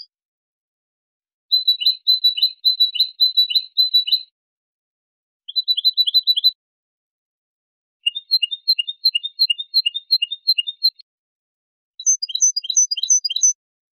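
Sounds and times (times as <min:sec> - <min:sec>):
goldfinch singing: 0:05.5 - 0:06.6, 0:08.0 - 0:11.0, 0:12.0 - 0:13.6.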